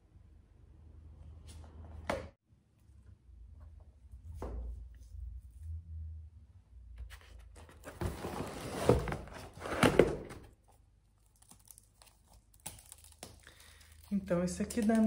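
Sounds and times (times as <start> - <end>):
books and packaging rustling: 7.0 - 15.0.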